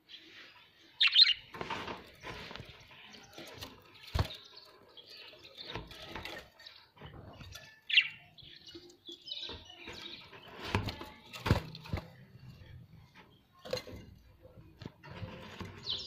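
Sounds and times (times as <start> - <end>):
budgerigars chirping: 1.0 - 1.5
wings fluttering: 1.5 - 4.5.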